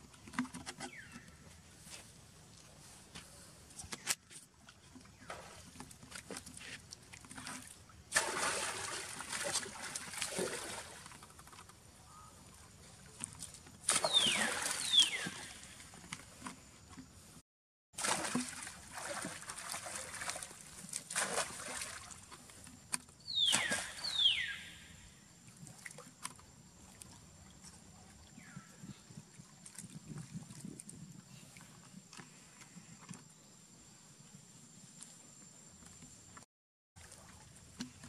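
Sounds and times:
water splashing: 4.9s - 11.6s, 13.0s - 16.1s, 18.0s - 22.5s, 23.4s - 24.5s.

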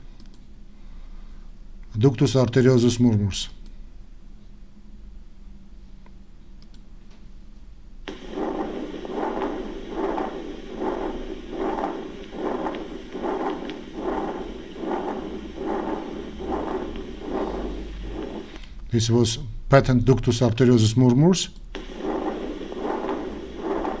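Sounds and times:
heart murmur rushing: 8.1s - 18.6s, 21.8s - 24.0s.

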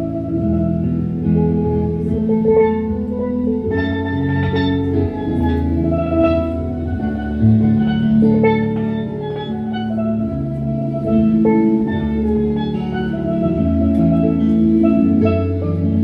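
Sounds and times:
low bass notes: 0.0s - 16.0s
steelpan melody: 0.0s - 16.0s.

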